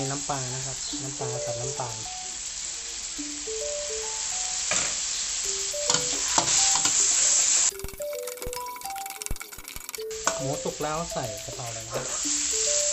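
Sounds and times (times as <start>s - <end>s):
background music melody: 0.0s - 12.9s
pork sizzling in a wok: 0.0s - 12.9s
metal spatula scraping a wok: 5.9s - 7.5s, 11.4s - 12.9s.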